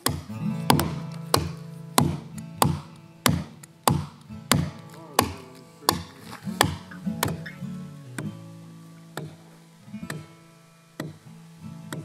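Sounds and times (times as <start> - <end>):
axe chopping wood: 0.0 - 7.5, 9.2 - 9.4, 10.1 - 10.3, 11.0 - 11.2
guitar music: 0.0 - 12.0.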